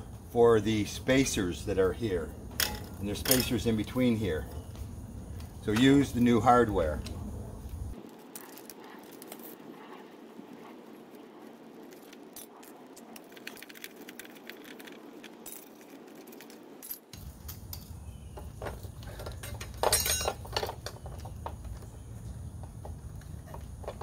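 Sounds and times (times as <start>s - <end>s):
small metal parts clinking: 2.6s - 3.8s, 11.9s - 17.9s, 18.6s - 21.3s.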